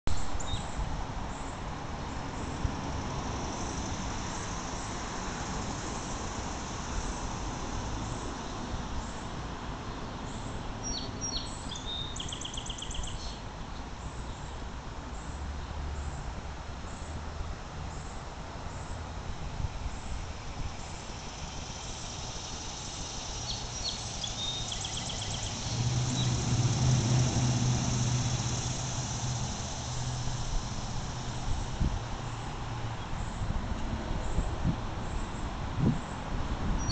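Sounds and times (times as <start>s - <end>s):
low engine hum: 21.2s - 36.9s.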